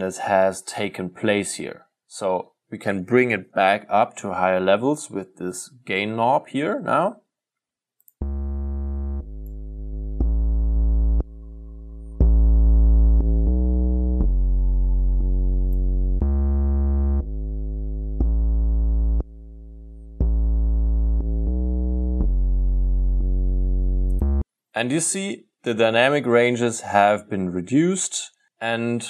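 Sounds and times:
bass held notes: 8.2s - 24.4s.

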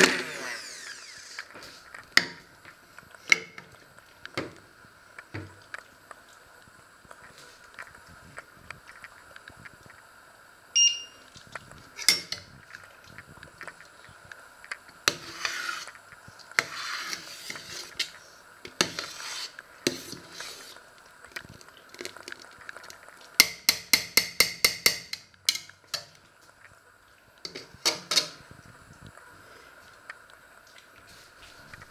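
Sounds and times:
short electronic beep: 10.8s - 11.2s
wooden spoon scraping metal pot: 15.1s - 16.0s, 16.6s - 20.8s.

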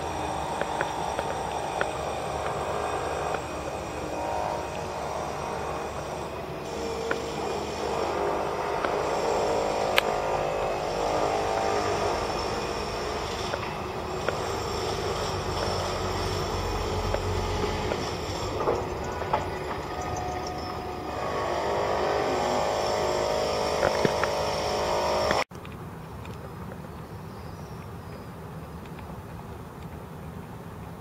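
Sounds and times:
heavy low rumble: 0.0s - 23.2s
city traffic noise: 0.0s - 31.0s.

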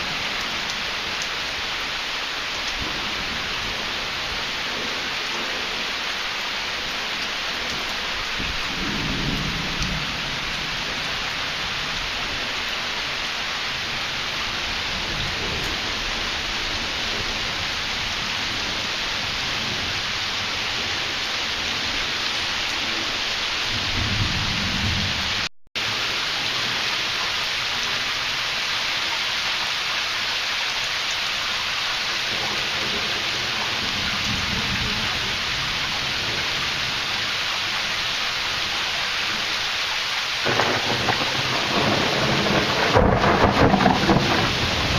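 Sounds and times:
heavy rain: 0.0s - 44.9s
thunder rumbling: 6.6s - 13.1s, 22.8s - 26.0s, 40.4s - 44.9s.

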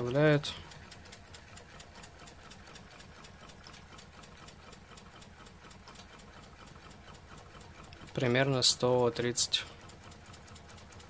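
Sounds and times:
engine flywheel fast ticking: 0.0s - 11.0s.

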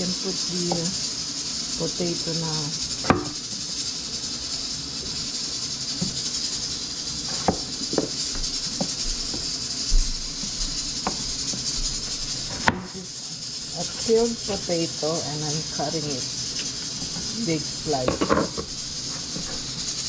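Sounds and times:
steady hiss: 0.0s - 20.0s
knife knocking on cutting board: 3.1s - 3.3s.

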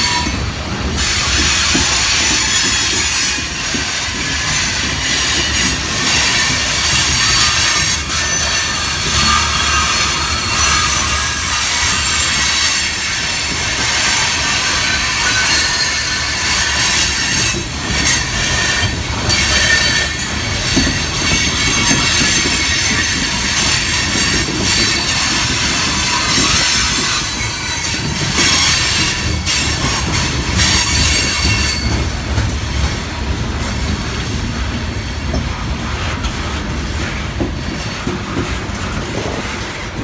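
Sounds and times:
steel wheels squealing on rail: 0.0s - 40.0s.

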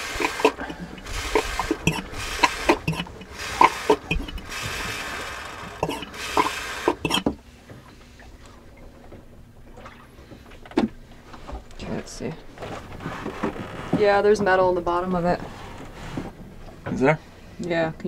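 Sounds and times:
hand vacuum pump clicking: 0.0s - 5.1s, 5.8s - 7.3s
wet sucking: 0.0s - 7.3s.

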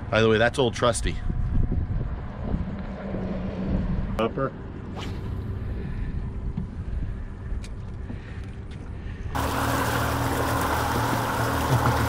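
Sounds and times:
low wind rumble: 0.0s - 11.6s
wind and water noise: 0.0s - 12.0s
boat engine running: 7.8s - 12.0s.

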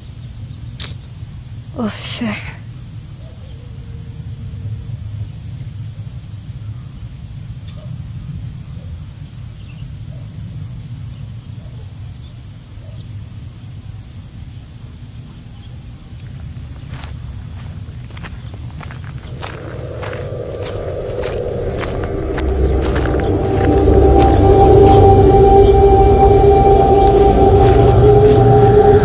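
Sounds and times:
crickets trilling: 0.0s - 29.0s
low background rumble: 16.6s - 29.0s
footsteps through undergrowth: 16.7s - 25.1s.

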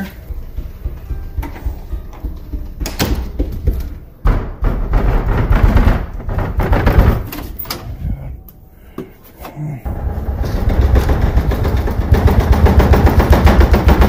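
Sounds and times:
rustling and bumping: 0.1s - 8.0s, 9.9s - 14.0s
door knock: 0.6s - 7.4s.

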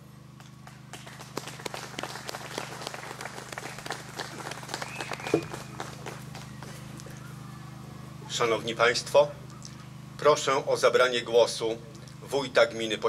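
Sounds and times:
low hum: 0.0s - 12.4s
audience applauding: 0.6s - 6.9s.

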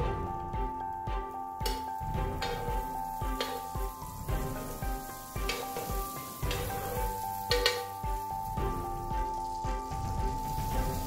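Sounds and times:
butter sizzling in frying pan: 1.7s - 11.0s
spatula strokes in pan: 2.3s - 11.0s.

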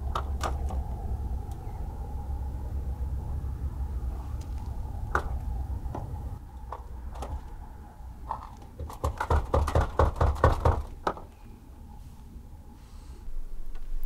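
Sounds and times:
banging on plastic case: 8.3s - 11.3s.

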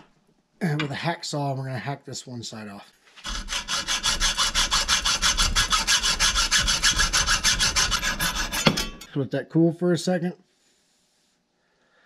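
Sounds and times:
hacksaw cutting metal: 3.2s - 9.1s.

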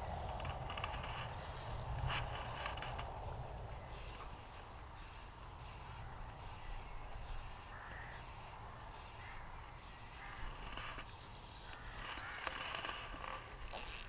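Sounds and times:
wind rumble on microphone: 0.0s - 4.0s
rustling: 0.2s - 3.2s
crows cawing: 7.4s - 11.0s, 11.6s - 13.0s
small clicks of fishing line: 11.7s - 14.0s.

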